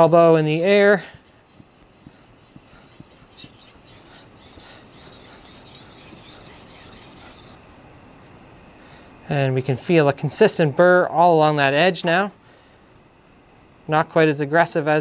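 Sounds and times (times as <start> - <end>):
knife scraping on whetstone: 0.4 - 7.6.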